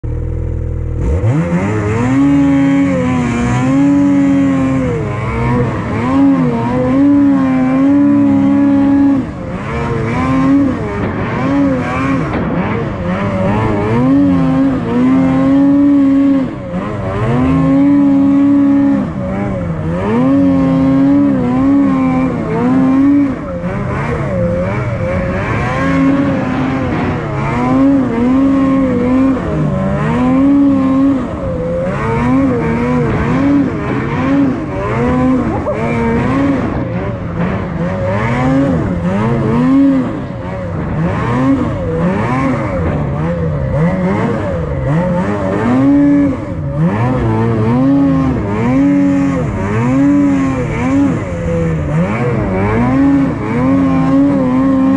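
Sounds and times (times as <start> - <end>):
snowmobile engine revving: 0.1 - 54.9.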